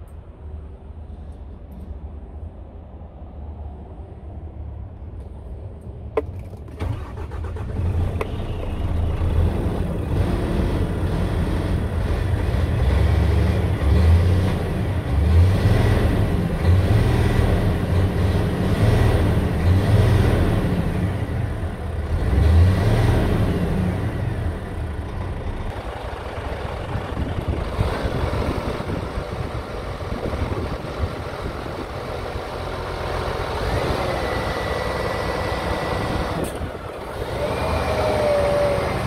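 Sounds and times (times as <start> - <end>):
truck engine rumble: 0.0 - 39.0
truck engine revving: 6.8 - 39.0.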